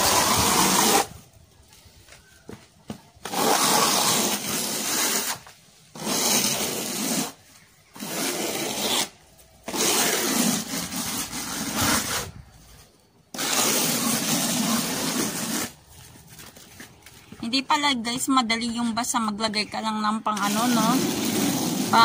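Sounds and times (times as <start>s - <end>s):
trowel scraping on concrete: 0.0s - 1.3s, 3.2s - 17.0s, 20.2s - 22.0s.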